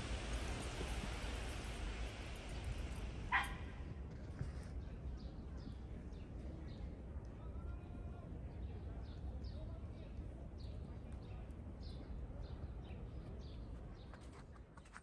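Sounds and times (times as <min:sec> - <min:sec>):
steady outdoor hiss: 0:00.0 - 0:14.1
dog barking: 0:03.3 - 0:03.6.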